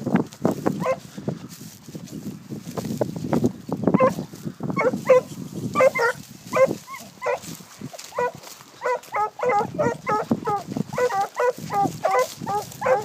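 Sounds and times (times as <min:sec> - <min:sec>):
footsteps through grass: 0:00.0 - 0:13.0
hounds yelping: 0:00.8 - 0:01.0, 0:04.0 - 0:04.2, 0:04.8 - 0:13.0.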